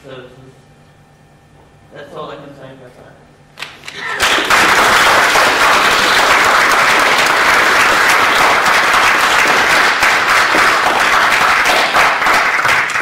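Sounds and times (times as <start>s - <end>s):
audience applause: 3.8s - 13.0s.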